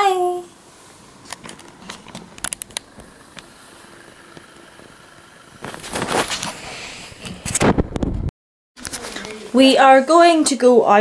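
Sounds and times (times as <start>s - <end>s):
camera rubbing on clothing: 5.6s - 7.9s.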